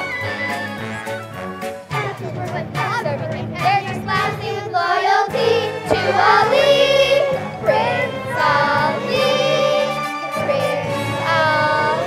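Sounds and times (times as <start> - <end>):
children's choir singing: 4.3 - 12.0
instrumental accompaniment: 5.9 - 8.8.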